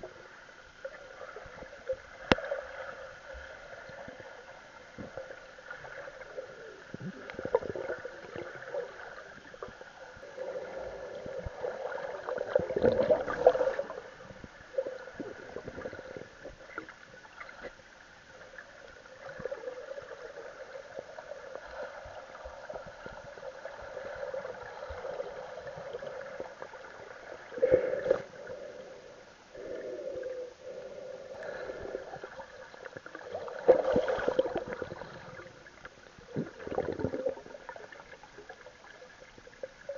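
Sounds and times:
muffled water sloshing: 31.4s - 39.9s.

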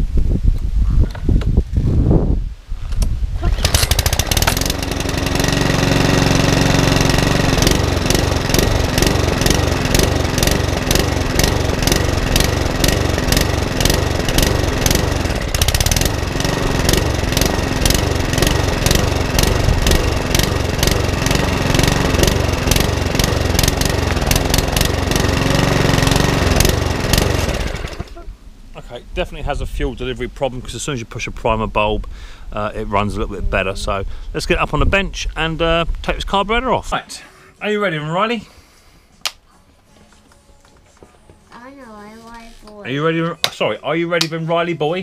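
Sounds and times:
lawn mower engine running unevenly: 3.4s - 28.2s.

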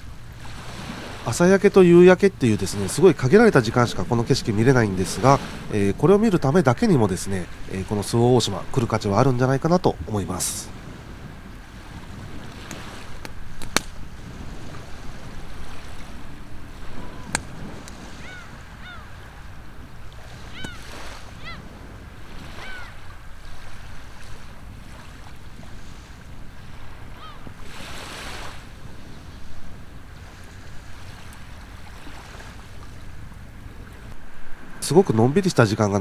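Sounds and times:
sea washing on shore: 0.0s - 36.0s
wind: 0.0s - 36.0s
high-pitched bird calls: 18.2s - 19.2s, 20.5s - 21.7s, 22.6s - 23.0s.

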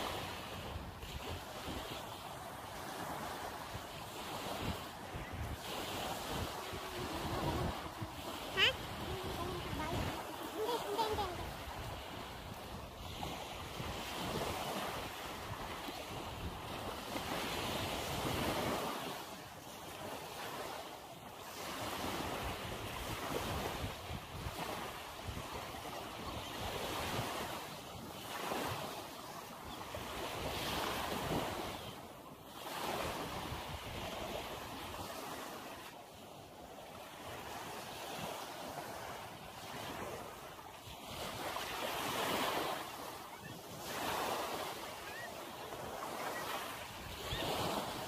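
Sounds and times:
small waves lapping on shore: 0.0s - 48.0s
wind buffeting microphone: 4.2s - 14.9s.

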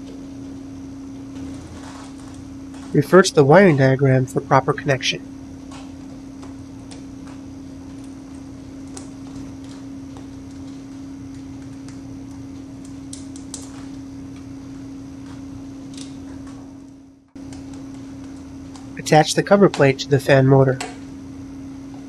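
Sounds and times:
steady low hum: 0.0s - 22.0s
fingers clicking and tapping wires: 5.7s - 14.5s, 15.2s - 20.0s, 20.7s - 21.1s.

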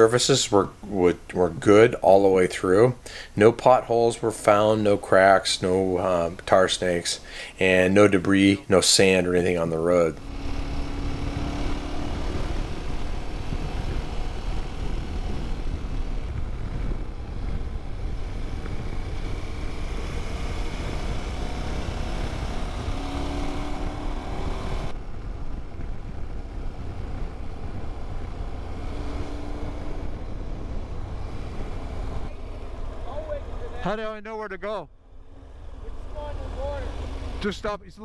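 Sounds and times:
riding wind rushing: 0.0s - 38.0s
motorcycle engine running: 9.7s - 34.1s, 34.9s - 38.0s.

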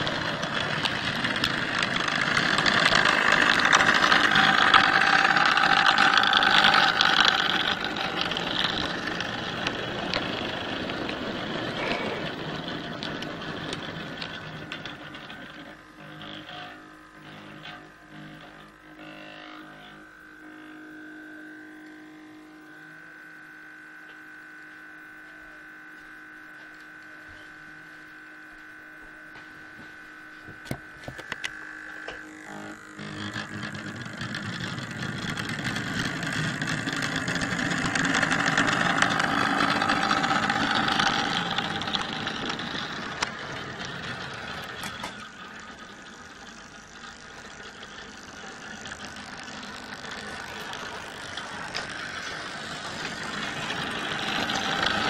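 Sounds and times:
model train rumbling on track: 0.0s - 20.0s, 32.3s - 55.0s
steady hum: 0.0s - 55.0s.

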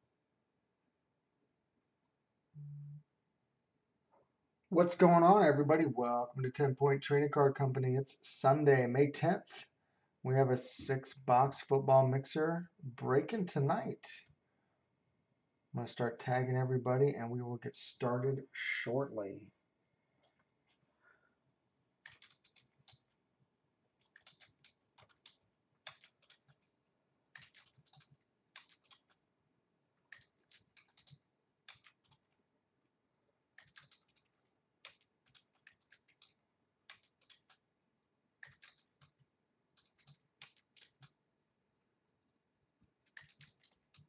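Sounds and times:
faint keyboard typing: 20.0s - 21.3s, 21.9s - 42.0s, 42.7s - 44.0s.

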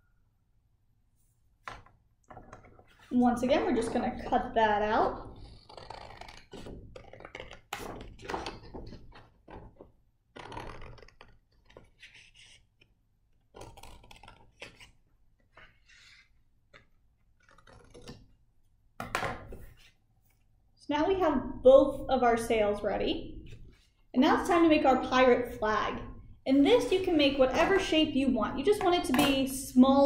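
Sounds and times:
paper rustling: 5.4s - 12.9s, 13.5s - 18.3s.

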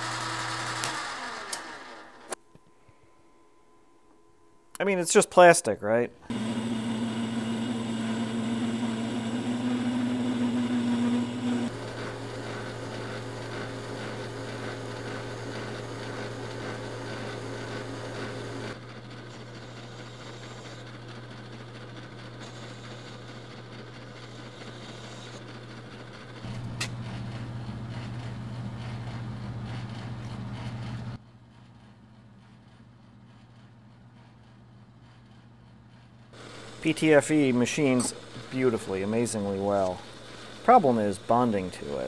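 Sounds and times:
metal lathe humming: 0.0s - 2.4s, 6.3s - 31.2s, 36.4s - 42.0s
high steady whine: 36.4s - 42.0s.

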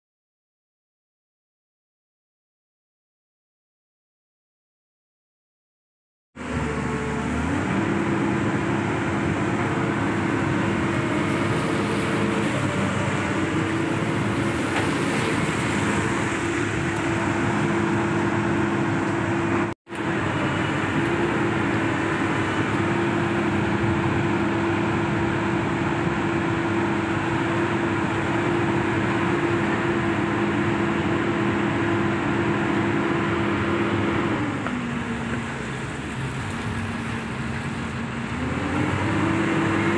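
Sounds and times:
diesel engine droning: 6.4s - 39.9s.

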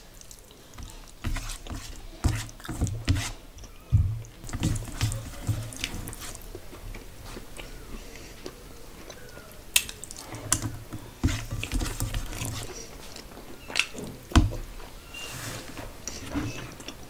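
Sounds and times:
fingers mixing food on steel plate: 0.2s - 14.9s
chewing with wet mouth sounds: 4.4s - 14.0s.

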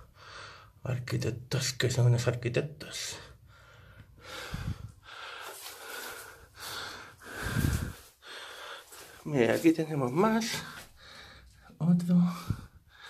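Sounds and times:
person breathing close to mic: 3.3s - 9.3s, 10.6s - 11.7s, 12.3s - 13.0s.

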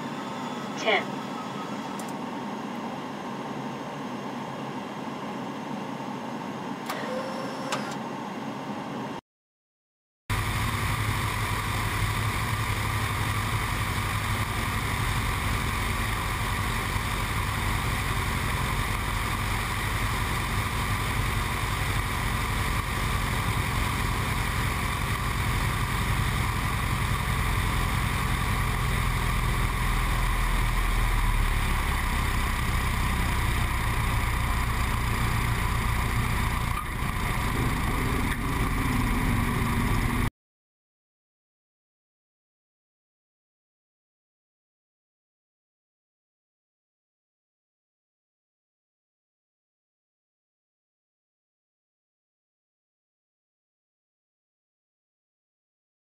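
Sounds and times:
propeller engine running: 10.3s - 40.3s.

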